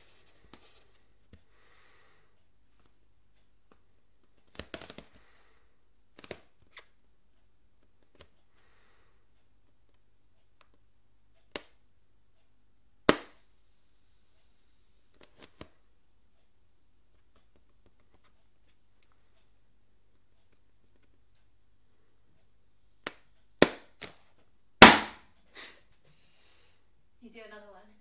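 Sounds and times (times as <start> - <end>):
fingers tapping tape and balloon: 3.7 - 5.2, 13.0 - 13.5, 23.0 - 25.2
faint high hiss: 13.0 - 19.9
sharp snap: 13.1 - 13.5, 24.8 - 25.2.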